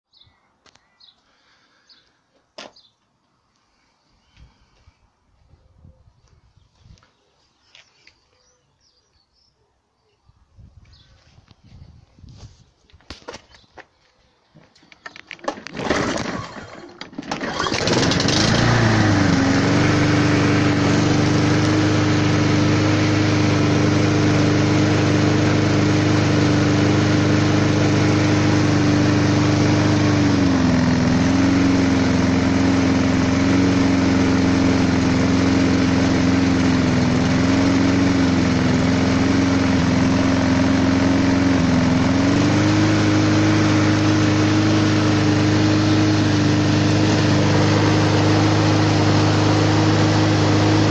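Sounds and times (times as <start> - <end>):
lawn mower engine starting and running: 14.6 - 50.9.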